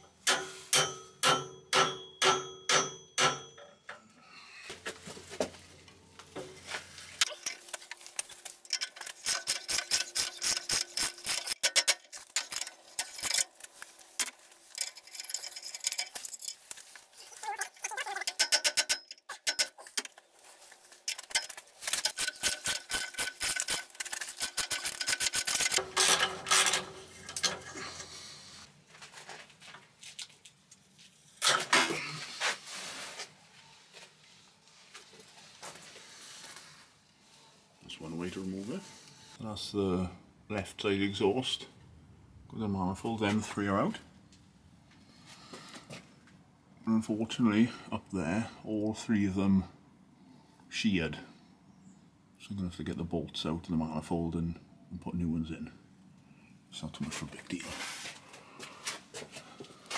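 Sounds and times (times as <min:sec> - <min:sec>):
hammer striking metal socket: 0:00.2 - 0:04.0.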